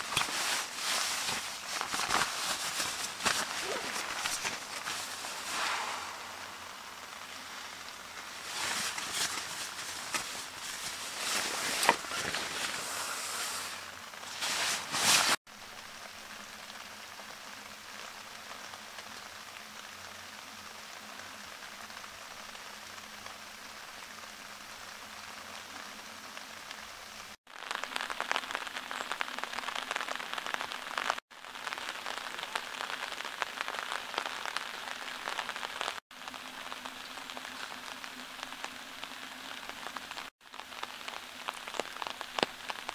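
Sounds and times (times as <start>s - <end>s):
nylon fabric rustling: 0.0s - 15.4s
rain pattering on a tent: 0.0s - 42.9s.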